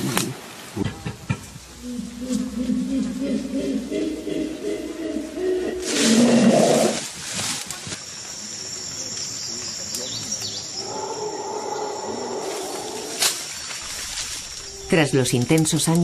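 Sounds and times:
gorilla roaring: 0:01.8 - 0:07.0.

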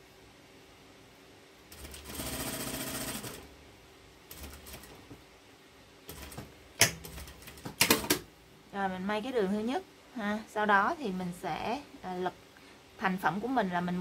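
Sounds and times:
sewing machine stitching: 0:01.7 - 0:03.4.

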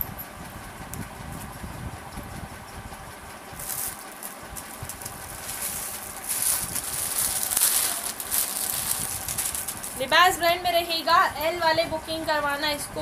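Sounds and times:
clothing rustling: 0:03.6 - 0:10.1.

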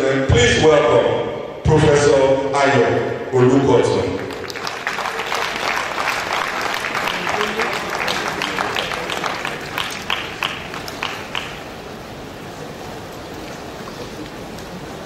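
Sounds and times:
steady background hiss: 0:00.0 - 0:15.0
audience applause: 0:04.1 - 0:15.0.

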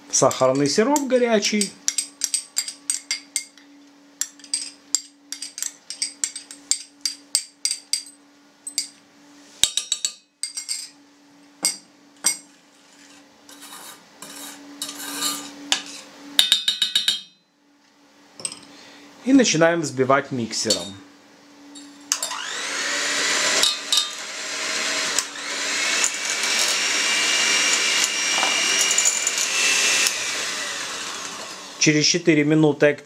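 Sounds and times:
spoon scraping steel saucepan: 0:13.0 - 0:16.1.

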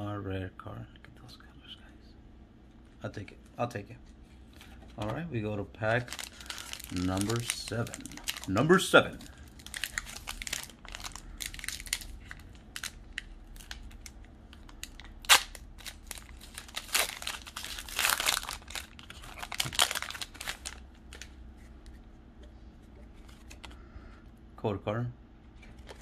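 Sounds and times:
foil wrapper crinkling and tearing: 0:05.9 - 0:21.3.

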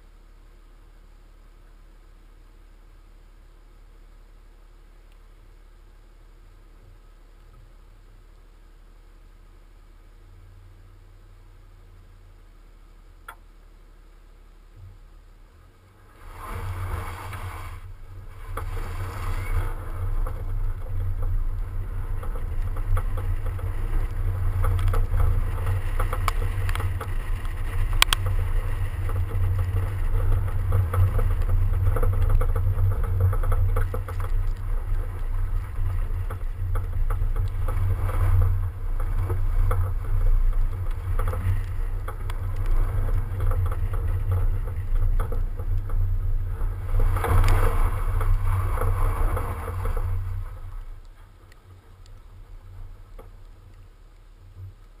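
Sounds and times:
road and tyre noise: 0:00.0 - 0:55.0
wind rumble on microphone: 0:14.7 - 0:55.0
snow crackles: 0:15.6 - 0:55.0.

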